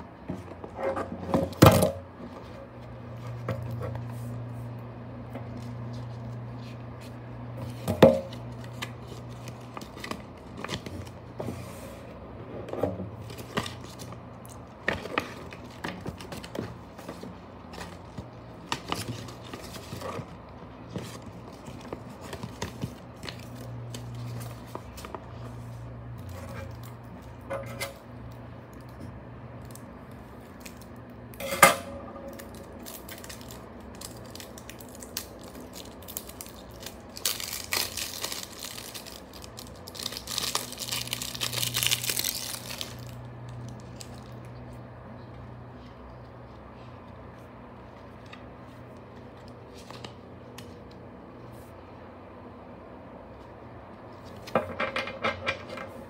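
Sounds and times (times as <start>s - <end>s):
paper pages rustling: 5.4s - 11.8s, 13.2s - 27.4s, 45.8s - 51.6s
plastic wrap crinkling: 32.3s - 44.7s.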